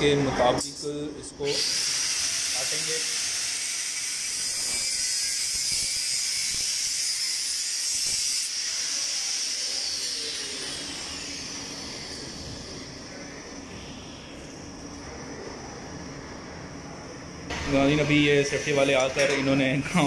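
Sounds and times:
angle grinder cutting metal: 1.5 - 13.1
grinder disc winding down: 1.5 - 13.7.

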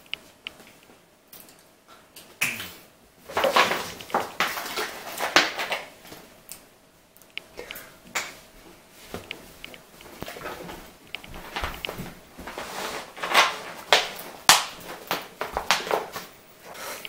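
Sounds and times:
person gulping: 2.4 - 2.8.

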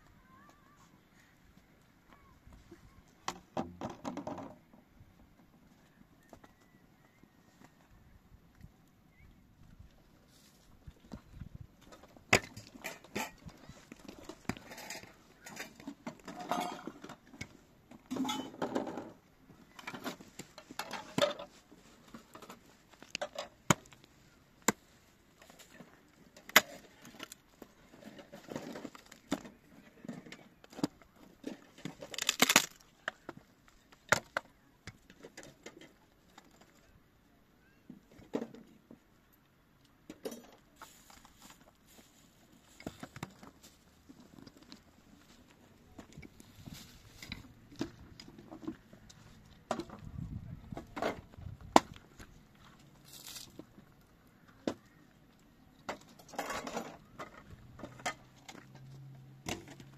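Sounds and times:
rustling and scraping: 10.0 - 34.4, 40.1 - 55.0.

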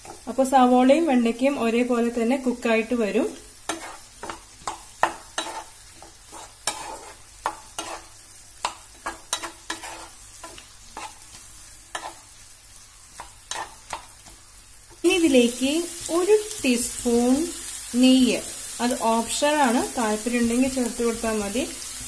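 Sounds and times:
vegetables sizzling in oil: 0.0 - 22.0
wooden spatula scraping a pan: 3.7 - 12.3, 13.1 - 14.4.

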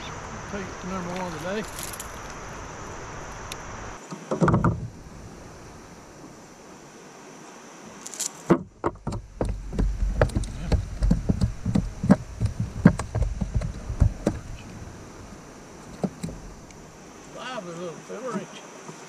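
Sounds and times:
fishing gear clicking and knocking: 8.6 - 14.8, 15.8 - 16.8.

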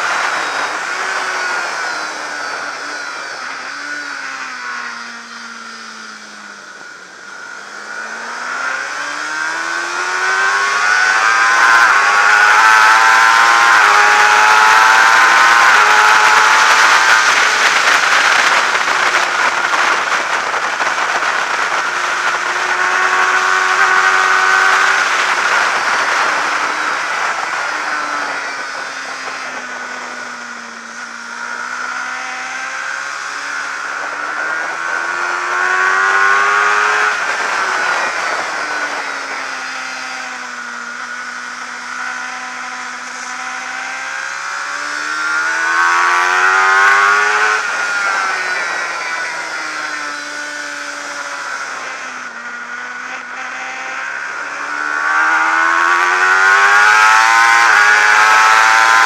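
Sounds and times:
motorcycle engine revving: 0.0 - 59.0
wind rushing over microphone: 0.0 - 59.0.

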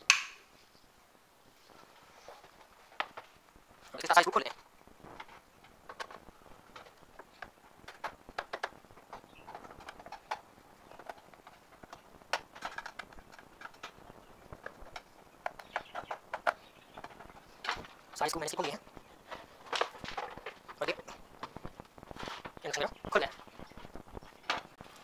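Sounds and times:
plastic casing handled: 5.1 - 25.0.

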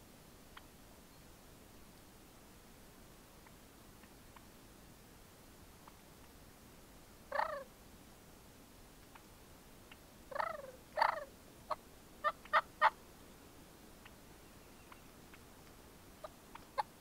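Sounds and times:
turkey clucks: 7.3 - 7.7, 9.9 - 13.0, 16.2 - 17.0
turkey yelping: 7.3 - 7.7, 10.3 - 13.0.

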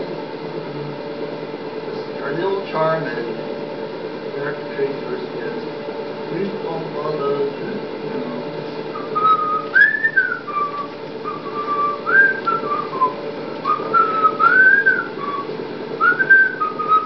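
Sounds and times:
person whistling a tune: 9.0 - 17.0.

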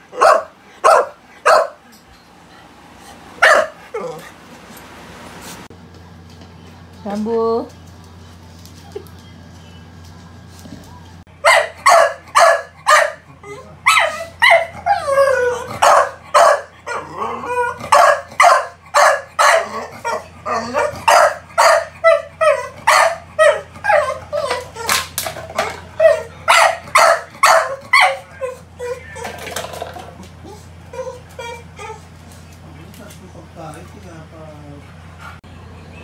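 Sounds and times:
dog barking: 0.1 - 1.8, 3.4 - 4.2, 11.4 - 15.0, 15.6 - 17.0, 17.7 - 24.9, 25.6 - 29.3
dog whining: 3.4 - 4.4, 13.2 - 18.6, 19.4 - 32.4.

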